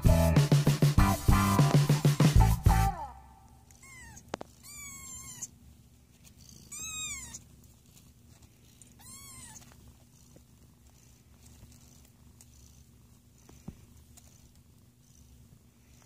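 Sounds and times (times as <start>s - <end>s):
kittens mewing: 3.6s - 5.6s, 6.2s - 16.0s.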